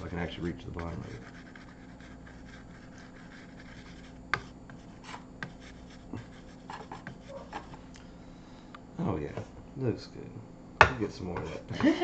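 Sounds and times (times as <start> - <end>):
palette knife scraping canvas: 0.8 - 7.8.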